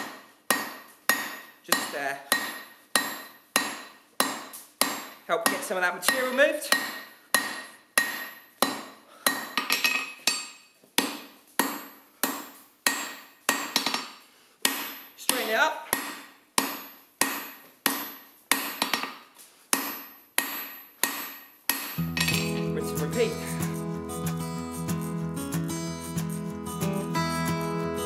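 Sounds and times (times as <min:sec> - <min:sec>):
hammer striking steel on anvil: 0:00.0 - 0:19.1, 0:19.7 - 0:23.4
acoustic guitar music: 0:22.0 - 0:28.0.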